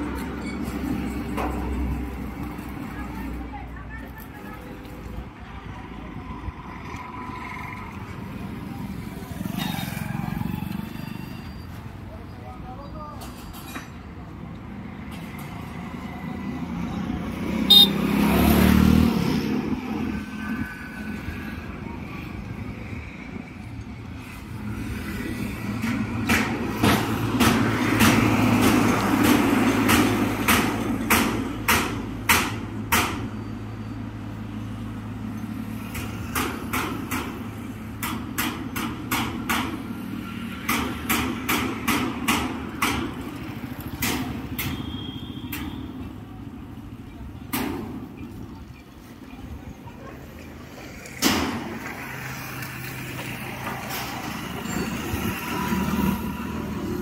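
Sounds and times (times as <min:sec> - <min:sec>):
vehicle passing loudly: 0:16.6 - 0:21.2
hammer strikes: 0:25.8 - 0:33.3, 0:35.9 - 0:43.3.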